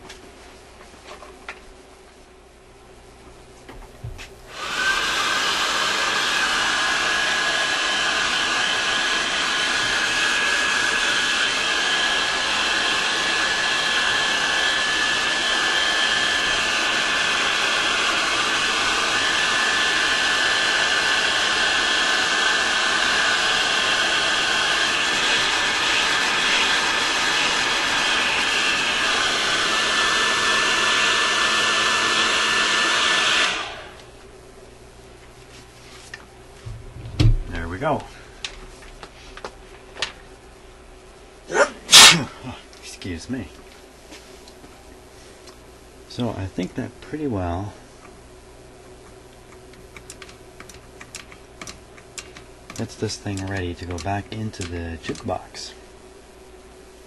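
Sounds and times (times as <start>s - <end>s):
heat gun blowing: 4.5s - 34.1s, 41.5s - 42.3s.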